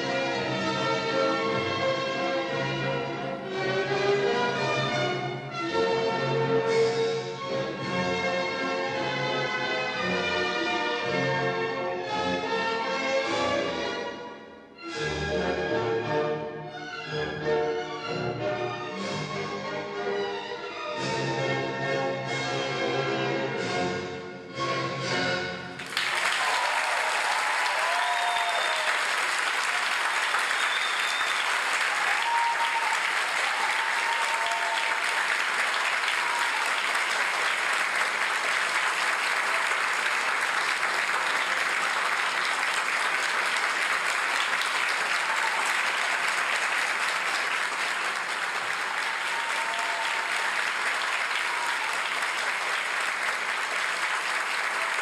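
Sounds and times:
audience applauding: 0:25.8 - 0:55.0
short cheers: 0:25.9 - 0:37.2, 0:44.9 - 0:46.6, 0:48.7 - 0:52.6.

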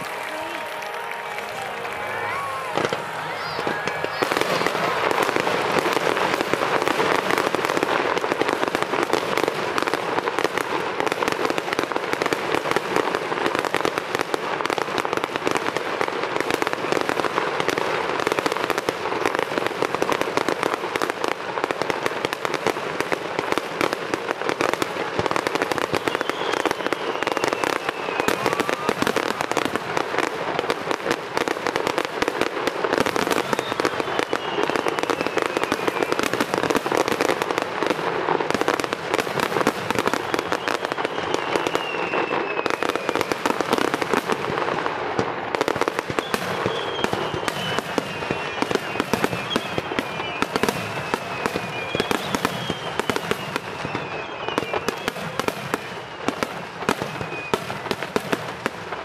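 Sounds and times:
fireworks bursting and crackling: 0:00.0 - 0:59.0
falling firework whistles: 0:25.4 - 0:30.3, 0:31.0 - 0:37.6, 0:38.5 - 0:44.2, 0:45.6 - 0:58.2.

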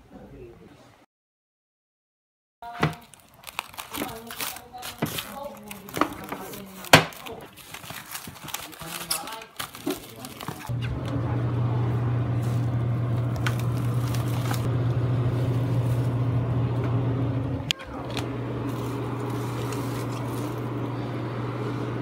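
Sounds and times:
drink cooler motor humming: 0:10.2 - 0:22.0.

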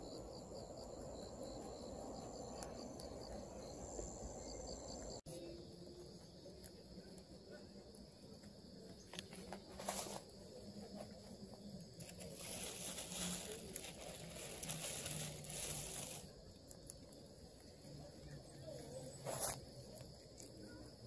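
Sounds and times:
rabbit chewing leaves: 0:05.6 - 0:21.0
leafy rustling and crunching: 0:05.8 - 0:21.0.

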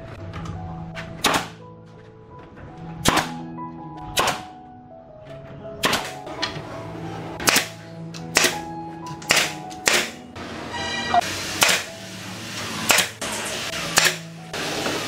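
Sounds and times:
nail gun firing into wood: 0:01.2 - 0:01.6, 0:03.0 - 0:03.4, 0:04.2 - 0:04.5, 0:05.8 - 0:06.2, 0:07.4 - 0:08.6, 0:09.2 - 0:10.2, 0:11.6 - 0:11.9, 0:12.9 - 0:13.2, 0:14.0 - 0:14.3.

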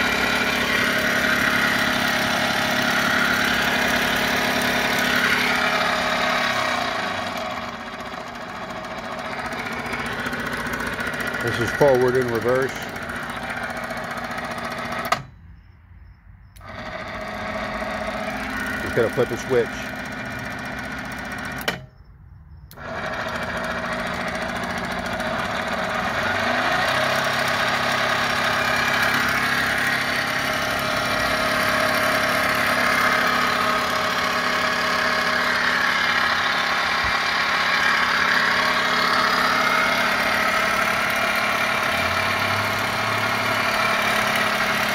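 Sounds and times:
electric motor hum and whine: 0:00.0 - 0:15.4, 0:16.5 - 0:44.9.

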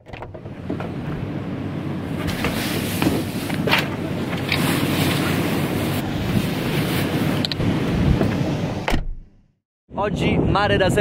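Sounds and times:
wind rumbling on microphone: 0:02.1 - 0:09.1, 0:09.9 - 0:11.0.

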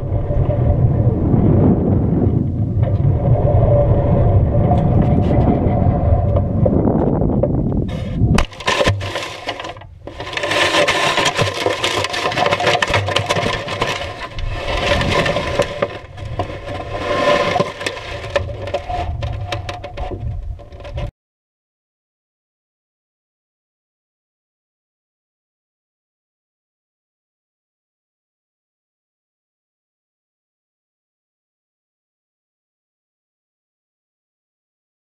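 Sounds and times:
wind buffeting microphone: 0:00.0 - 0:09.0, 0:12.5 - 0:21.1
crackling and scraping on stubble: 0:00.0 - 0:21.1
wind rushing over camera: 0:00.0 - 0:21.1.

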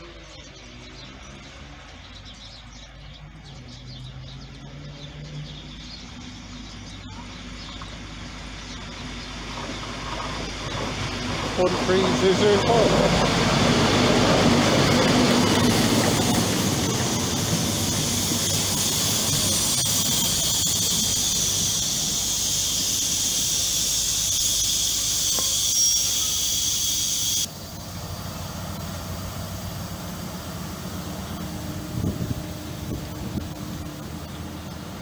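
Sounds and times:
train rumble: 0:00.0 - 0:35.0
high-pitched wheel squeal: 0:17.5 - 0:27.5.

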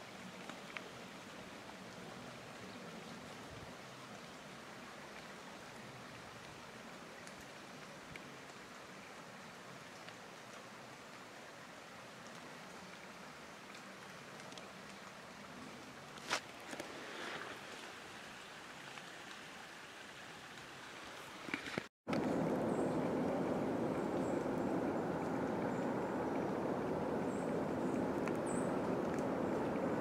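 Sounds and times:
faint hiss: 0:00.0 - 0:30.0
steady rushing noise: 0:22.1 - 0:30.0.

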